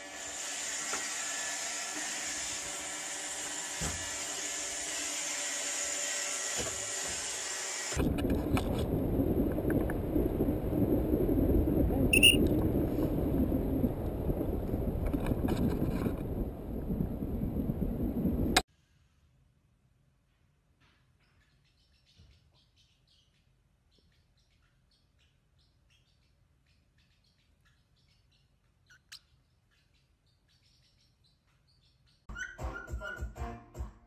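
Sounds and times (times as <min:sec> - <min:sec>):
wind rushing over microphone: 0:08.0 - 0:18.6.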